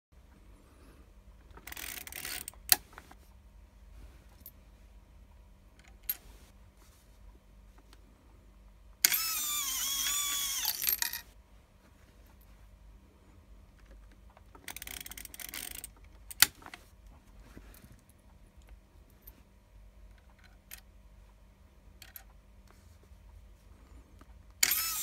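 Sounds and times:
coin set on lever click: 9.0s - 11.2s, 24.6s - 25.0s.

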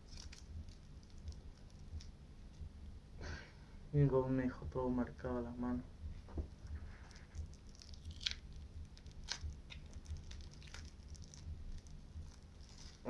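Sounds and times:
tape peeling off fingers: 0.0s - 2.2s, 6.4s - 13.0s
low hum: 0.0s - 13.0s.

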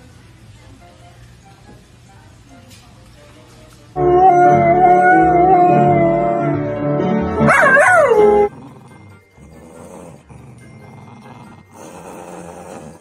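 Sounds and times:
dog howling: 4.0s - 6.6s, 7.5s - 8.5s.

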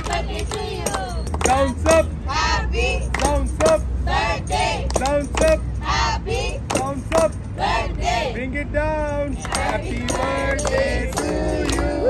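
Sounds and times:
people clapping along: 0.0s - 7.5s, 9.3s - 12.0s
group singing birthday song: 0.0s - 8.6s, 9.2s - 12.0s.

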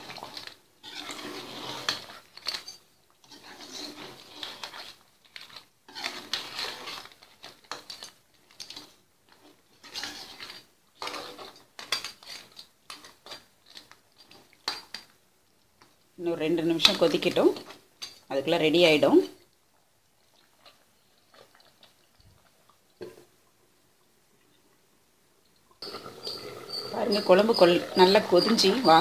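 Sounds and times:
metal ladle scraping pot: 0.0s - 15.0s, 25.8s - 29.0s.

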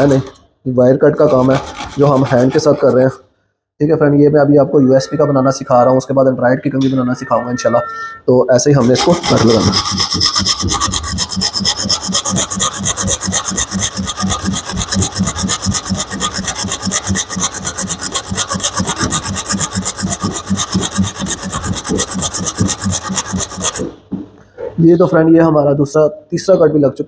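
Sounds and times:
hacksaw blade sawing metal: 1.2s - 3.2s, 8.8s - 24.0s.

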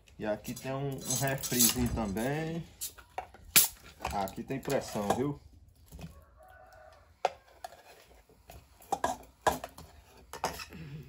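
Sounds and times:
dishes and cutlery clinking: 0.5s - 5.4s, 8.8s - 10.9s.

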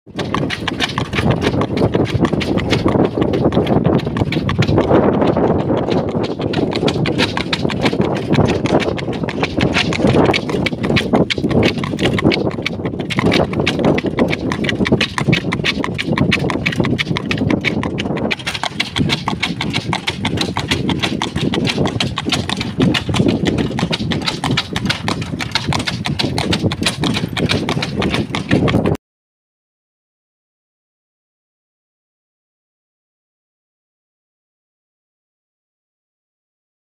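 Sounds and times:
horse hooves clip-clopping on asphalt: 0.1s - 29.0s.

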